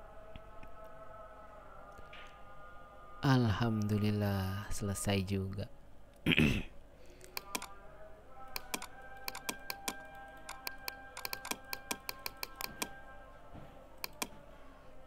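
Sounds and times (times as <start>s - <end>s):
faint background music: 0.0s - 15.0s
keyboard and mouse clicking: 7.2s - 7.7s, 8.5s - 13.0s, 14.0s - 14.4s.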